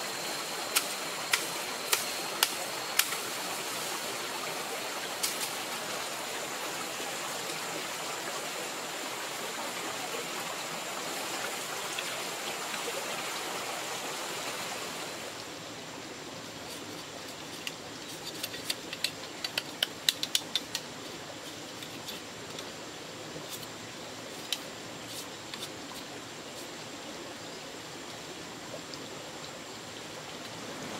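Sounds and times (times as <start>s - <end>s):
stream rushing over stones: 0.0s - 30.9s
blade cutting bamboo stick: 0.7s - 3.3s.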